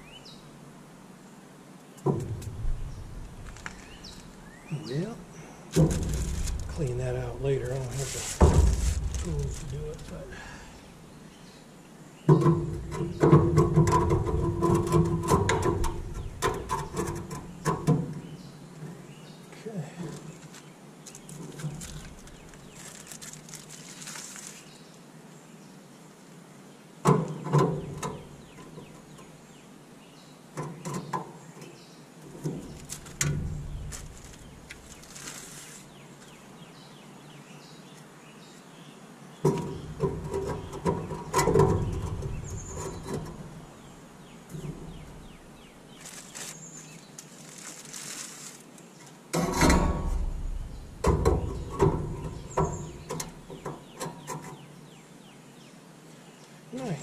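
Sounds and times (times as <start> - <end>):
metal plates clanking: 12.3 - 18.1, 49.4 - 54.5.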